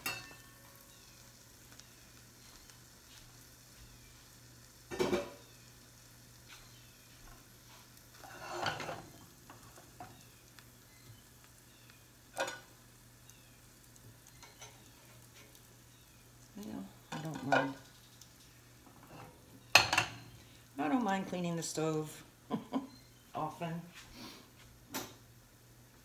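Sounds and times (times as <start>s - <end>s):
cookware and tongs clattering: 0.0s - 0.6s, 4.9s - 5.4s, 8.2s - 10.2s, 12.4s - 12.7s, 14.4s - 14.8s, 17.1s - 18.0s, 18.9s - 20.3s
sandwich sizzling in a skillet: 0.0s - 26.0s.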